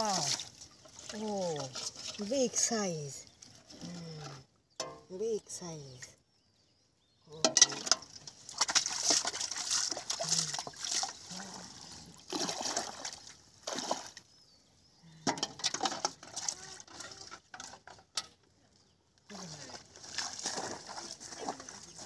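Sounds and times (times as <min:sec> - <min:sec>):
water splashing and sloshing: 0:00.0 - 0:03.8, 0:07.4 - 0:14.4, 0:15.3 - 0:18.4, 0:19.3 - 0:22.0.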